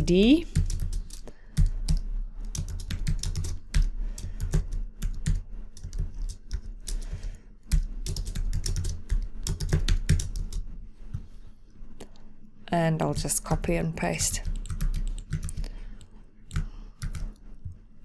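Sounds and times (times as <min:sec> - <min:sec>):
typing on computer keyboard: 0:00.5 - 0:10.6, 0:14.4 - 0:17.4.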